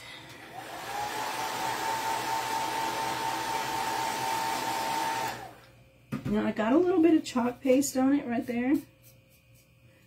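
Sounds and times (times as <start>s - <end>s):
hot-air dryer blowing: 0.0s - 5.7s.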